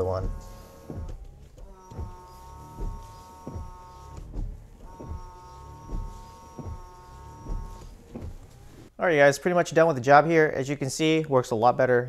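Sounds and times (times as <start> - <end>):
wiper knock: 0.0 - 8.9
wipers sweeping windshield: 0.0 - 8.9
windshield washer pump whining: 0.0 - 9.0.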